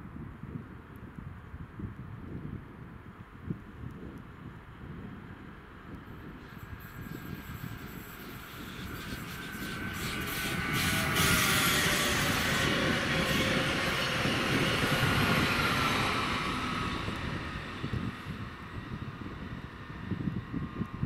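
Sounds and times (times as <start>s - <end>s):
train rumble and hiss: 6.2s - 19.9s
high squealing tones: 6.4s - 17.8s.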